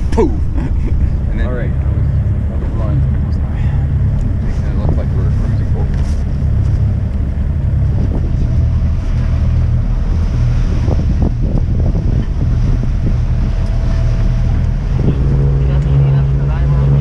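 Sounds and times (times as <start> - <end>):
water rushing along hull: 0.0 - 17.0
wind buffeting microphone: 0.0 - 17.0.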